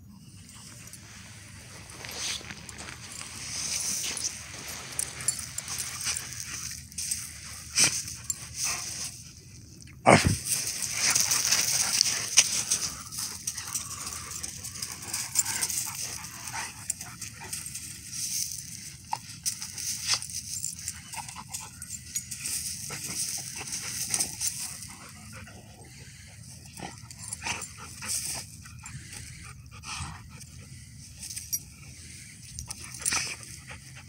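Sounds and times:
dogs vocalizing while playing: 0.3 - 34.0
scuffling on gravel: 0.6 - 9.1, 10.4 - 18.8.

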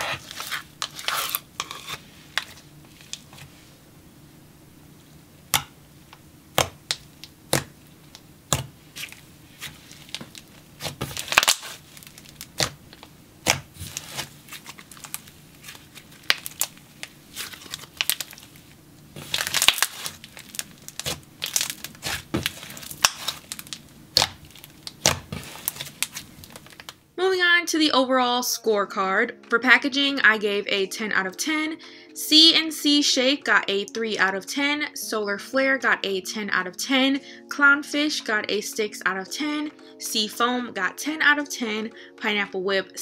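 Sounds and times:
slime popping and crackling: 6.5 - 27.0.

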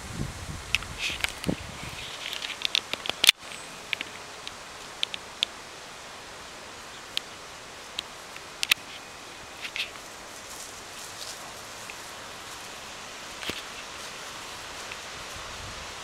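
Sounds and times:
outdoor rustling and hiss: 0.0 - 16.0
sharp clicks and ticks: 2.3 - 5.6.

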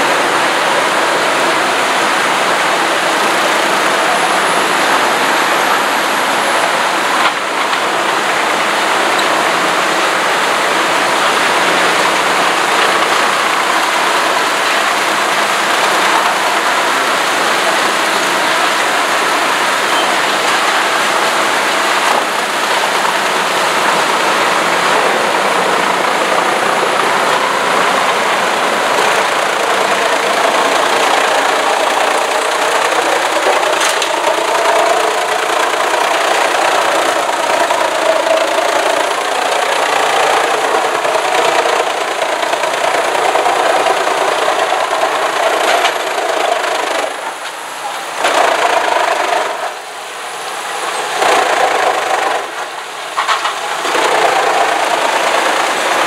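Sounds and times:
wood chipper chipping logs: 0.0 - 56.0.

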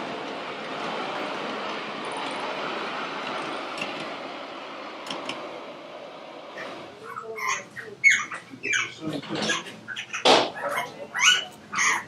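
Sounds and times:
model train rumbling on track: 0.0 - 8.2
bird calling: 6.6 - 12.0.

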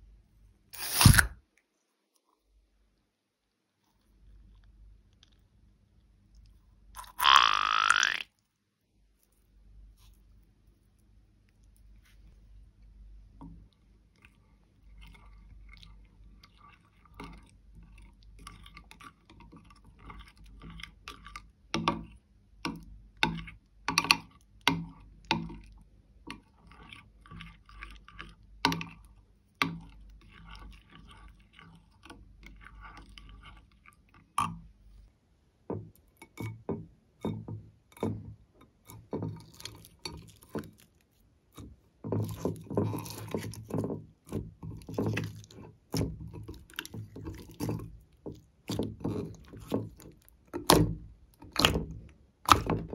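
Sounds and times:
hands kneading slime: 0.7 - 1.3, 37.8 - 52.9
slime squelching: 0.8 - 1.4, 3.5 - 8.2, 38.8 - 52.9.

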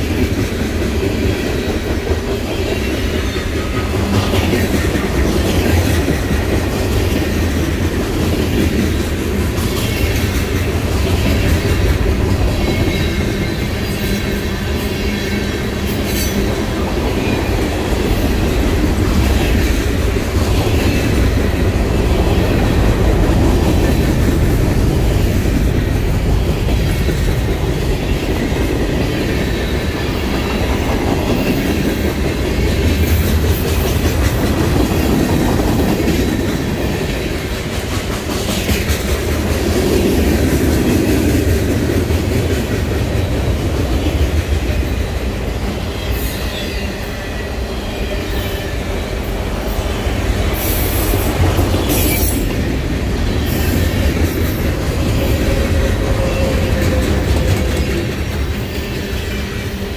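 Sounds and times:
freight train rumbling: 0.0 - 59.9
wheels clacking over rail joints: 50.2 - 59.9.

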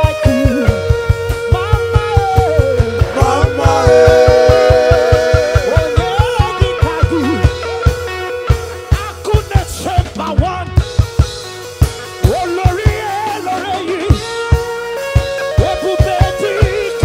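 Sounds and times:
held keyboard chord: 0.0 - 9.8
bass: 0.0 - 17.0
bending melody line: 0.0 - 17.0
drum kit beat: 0.0 - 17.0.

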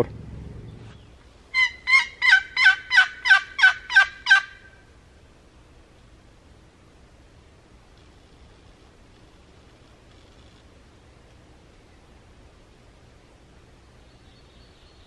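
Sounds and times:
turkey yelping: 1.5 - 4.8.

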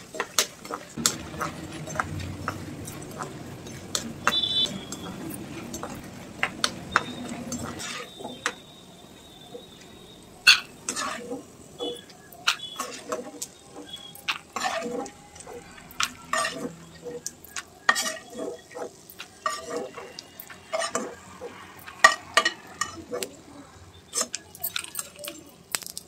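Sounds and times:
oil sizzling: 0.0 - 26.0
spoon scraping and clinking in pan: 10.5 - 13.5, 14.3 - 15.1, 17.9 - 21.2, 21.8 - 23.3.

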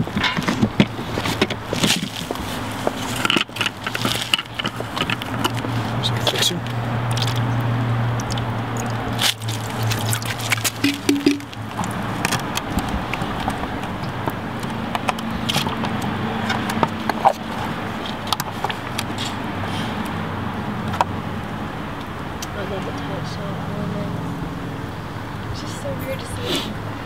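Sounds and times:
splashes clicks and knocks: 6.3 - 19.1
liquid pouring and sloshing: 7.0 - 12.1.

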